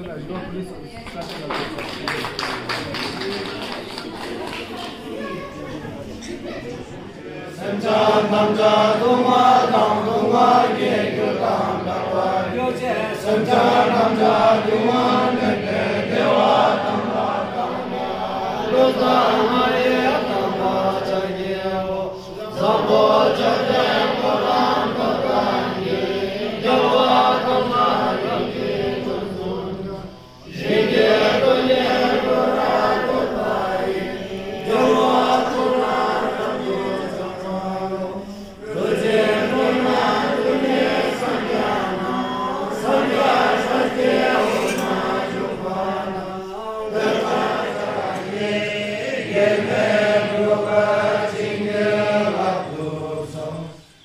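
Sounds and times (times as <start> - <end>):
congregation chanting in unison: 0.0 - 54.0.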